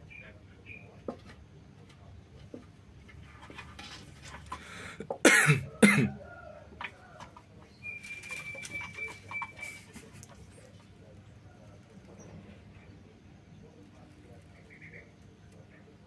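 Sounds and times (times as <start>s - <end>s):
kittens scuffling on wooden stool: 2.4s - 4.6s
loud coughs: 5.0s - 6.2s.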